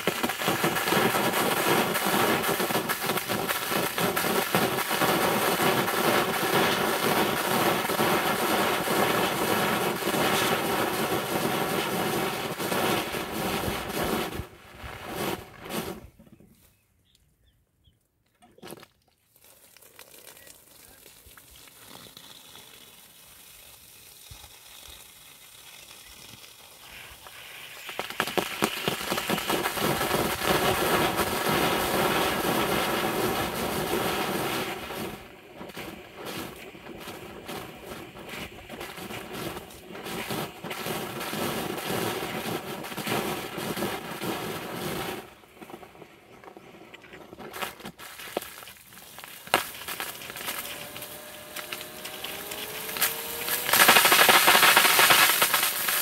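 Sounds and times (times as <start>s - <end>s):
sprinkler water spatter: 0.0s - 15.9s, 19.2s - 46.0s, 47.4s - 56.0s
faint water hiss: 19.2s - 47.2s
sprinkler clicks: 46.9s - 56.0s.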